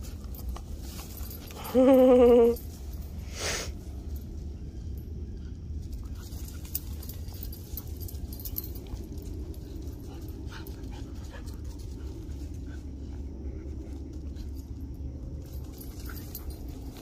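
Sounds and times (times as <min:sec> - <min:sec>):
steady low rumble: 0:00.0 - 0:17.0
dogs vocalizing while playing: 0:05.9 - 0:17.0.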